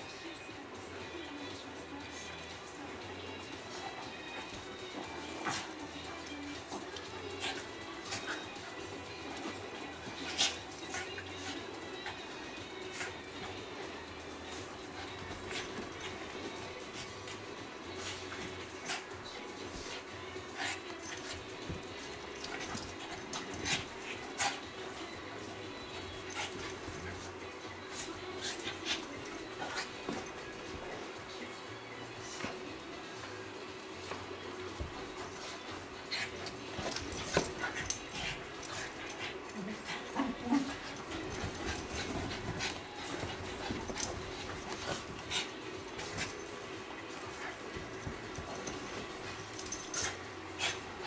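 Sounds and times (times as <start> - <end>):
small dogs play-fighting: 1.7 - 51.0
dogs making low vocal sounds: 34.2 - 51.0.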